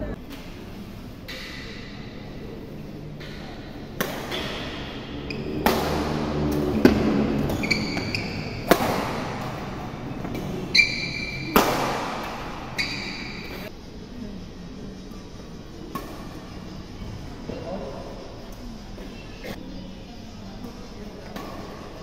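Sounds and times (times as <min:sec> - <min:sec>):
racket striking shuttlecock: 0:03.2 - 0:13.6, 0:15.9 - 0:16.4, 0:21.3 - 0:21.9
shoes squeaking on court: 0:03.7 - 0:13.7.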